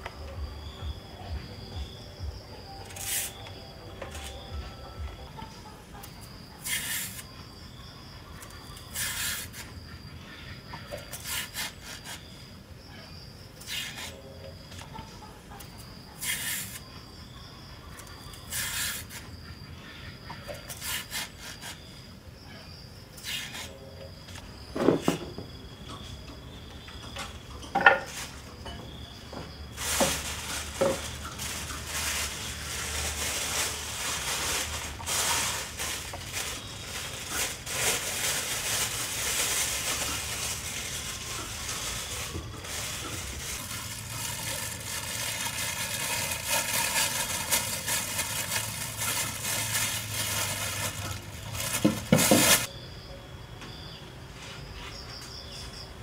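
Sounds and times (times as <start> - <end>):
kitchenware clatter: 27.6 - 29.0
steady cooking hiss: 29.6 - 52.7.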